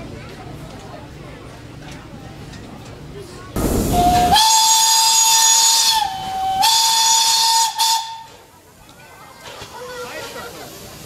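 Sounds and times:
steam locomotive whistle: 3.8 - 8.4.

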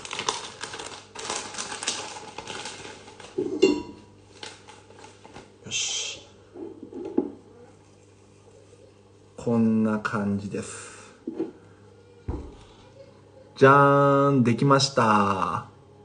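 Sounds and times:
plastic packet crinkling: 0.0 - 3.6, 4.2 - 5.5.

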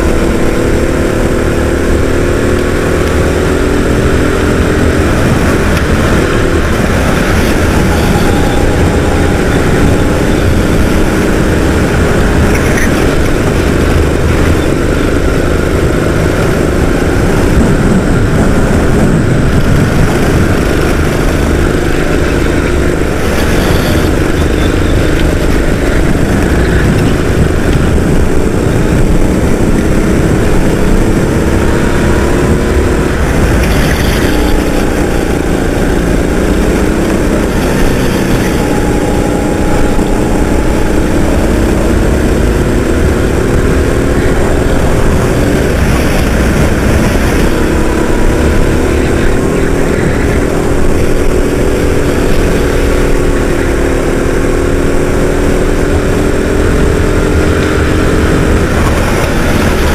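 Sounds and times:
constant low rumble: 0.0 - 59.9
go-kart engine racing: 0.0 - 59.9.

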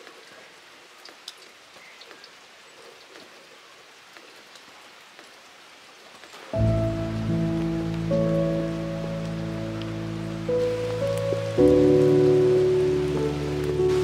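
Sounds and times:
rain falling: 0.0 - 14.0
music: 6.6 - 14.0.

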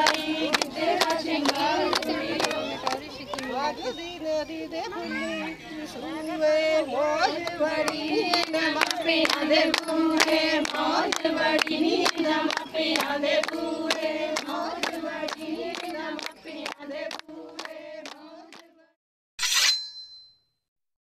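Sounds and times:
rhythmic clapping: 0.0 - 3.6, 7.2 - 18.7
women singing together: 0.0 - 5.1, 5.7 - 19.0.

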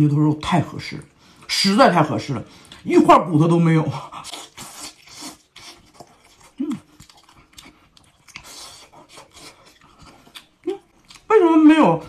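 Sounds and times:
wet chewing and lip-smacking: 4.0 - 11.3
person humming mm: 6.6 - 6.9.

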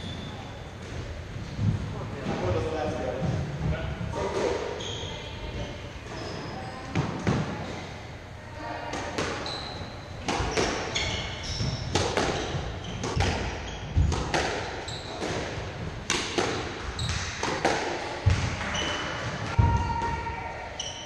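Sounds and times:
shoes squeaking on wooden floor: 9.3 - 14.2
squash ball cracks: 11.9 - 18.8.

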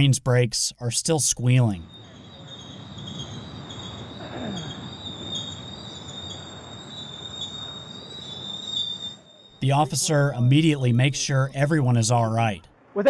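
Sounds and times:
train brakes squealing: 1.9 - 9.6.

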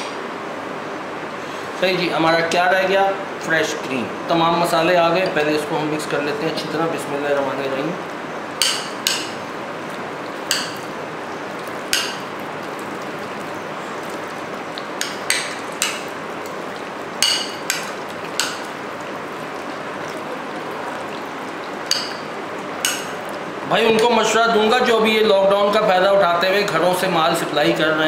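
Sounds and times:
clinks against glass bowl: 17.2 - 18.7, 21.9 - 23.2.

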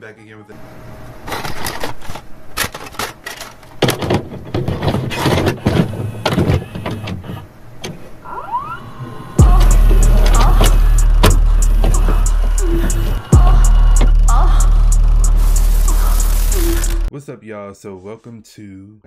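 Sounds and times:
short rising whistles: 8.2 - 9.4
glitch and static crackling: 9.4 - 17.1.

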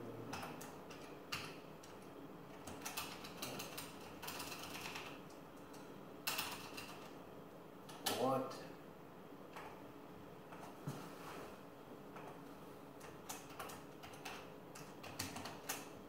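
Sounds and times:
keyboard keystrokes: 13.0 - 15.9.

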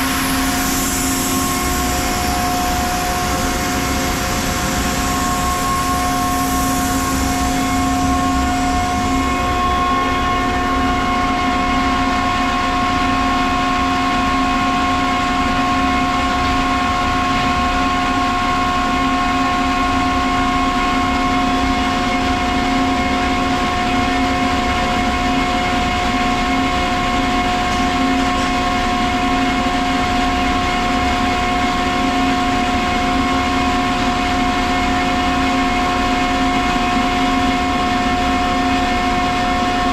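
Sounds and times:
high air hiss: 0.0 - 9.5
air compressor whining: 0.0 - 21.3.

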